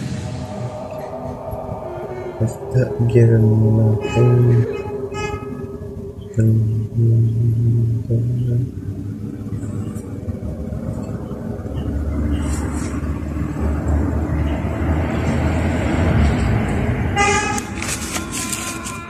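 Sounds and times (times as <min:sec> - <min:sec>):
deep rumble: 0:00.0 - 0:17.2
horn-like blast: 0:01.9 - 0:07.1.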